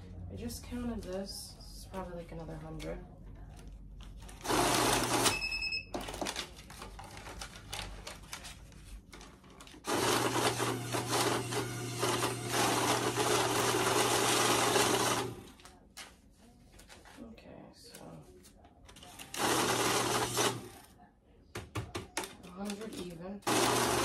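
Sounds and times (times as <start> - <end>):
banknote counter whirring: 4.4 - 5.5, 9.9 - 15.5, 19.3 - 20.8, 23.4 - 24.0
banknote counter beep: 5.2 - 5.9
rustling and clicks of bills: 6.0 - 9.9.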